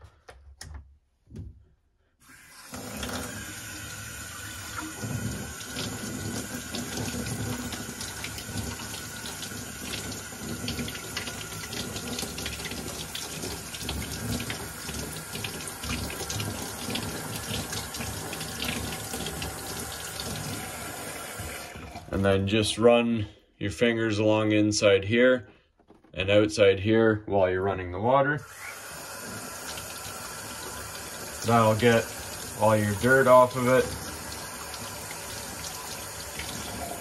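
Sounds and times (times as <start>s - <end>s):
faucet water splashing into sink: 2.2s - 22.2s, 28.5s - 37.0s.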